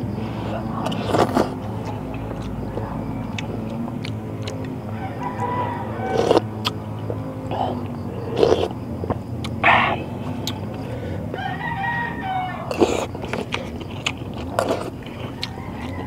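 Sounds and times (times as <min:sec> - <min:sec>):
chewing: 0:00.0 - 0:16.0
rooster crowing: 0:02.6 - 0:07.6, 0:10.7 - 0:13.2, 0:15.0 - 0:16.0.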